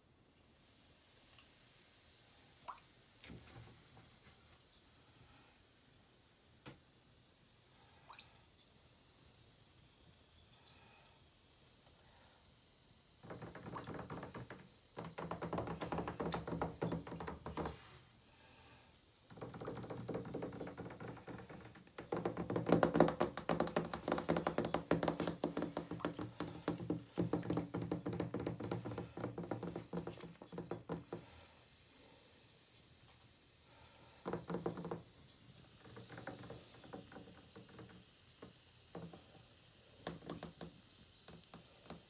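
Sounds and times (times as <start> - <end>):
fingers tapping in foamy water: 13.2 - 17.8, 19.4 - 31.2.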